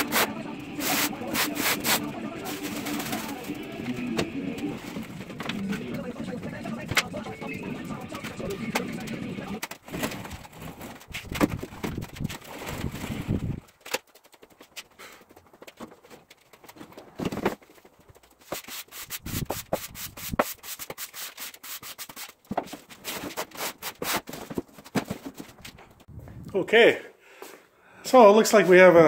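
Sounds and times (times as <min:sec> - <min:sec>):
push broom sweeping concrete: 0:00.0 - 0:03.6, 0:18.5 - 0:22.2.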